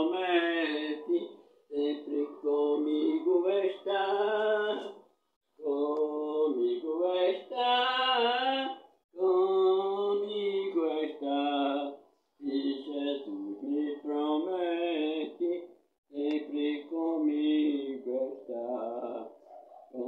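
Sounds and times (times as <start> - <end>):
elderly woman singing: 0.0 - 1.2, 5.6 - 15.5.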